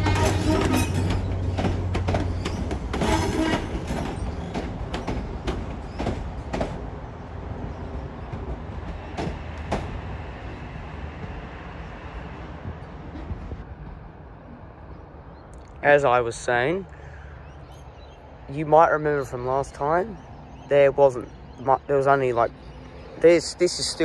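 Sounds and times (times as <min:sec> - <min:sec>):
train wheels clacking over rail joints: 0:00.0 - 0:06.9, 0:08.2 - 0:10.6
low steady train hum: 0:00.0 - 0:24.0.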